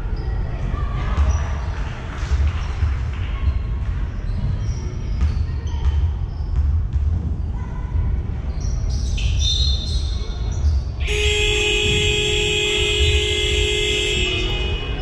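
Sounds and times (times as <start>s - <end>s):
basketball bouncing: 4.3s - 7.4s, 11.1s - 15.0s
loud steady buzzer: 11.0s - 15.0s.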